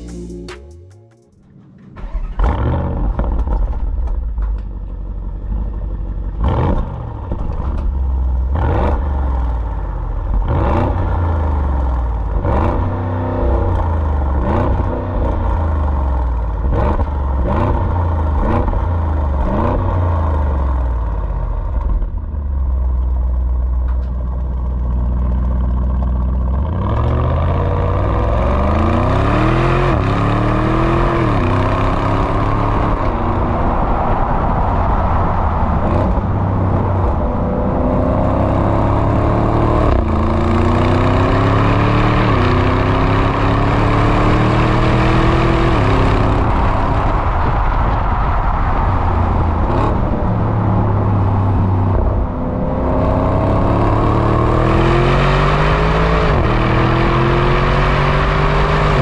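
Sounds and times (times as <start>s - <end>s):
car engine revving: 0.0s - 4.5s, 5.1s - 59.0s
car engine idling: 0.0s - 6.4s, 21.1s - 26.7s
car accelerating through upshifts: 10.3s - 16.0s, 26.5s - 33.6s, 35.8s - 48.1s, 49.2s - 59.0s.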